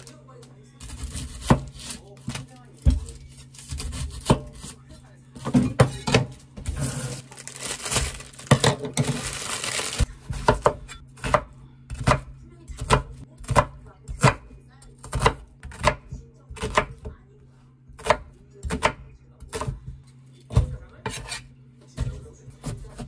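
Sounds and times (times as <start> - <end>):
knife chopping on wooden board: 0.9 - 4.8, 10.2 - 17.1, 17.9 - 21.4.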